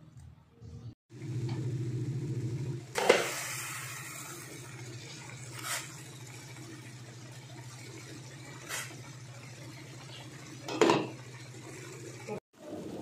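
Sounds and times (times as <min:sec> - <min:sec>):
broth boiling under glass lid: 0:02.9 - 0:13.0.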